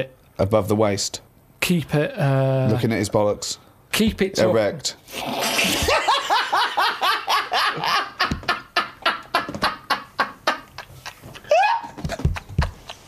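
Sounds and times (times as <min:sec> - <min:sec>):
men laughing: 0:05.6 - 0:13.0.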